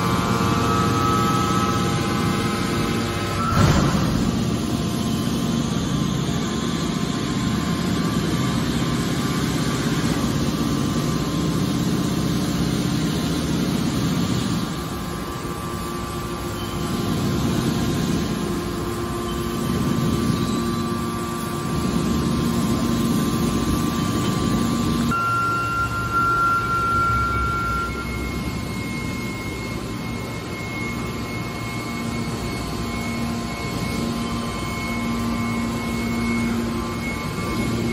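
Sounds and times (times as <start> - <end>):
hydraulic baler humming and whining: 0.0 - 37.9.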